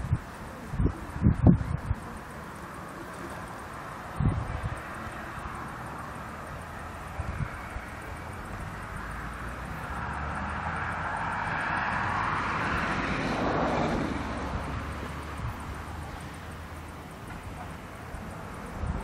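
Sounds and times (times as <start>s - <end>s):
engine passing by: 0.0s - 19.0s.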